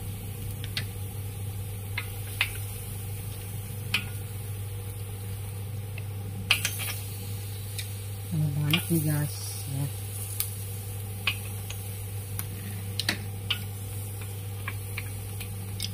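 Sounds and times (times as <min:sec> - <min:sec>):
steady low hum: 0:00.0 - 0:15.9
clam shells clicking on a pan: 0:12.4 - 0:15.9.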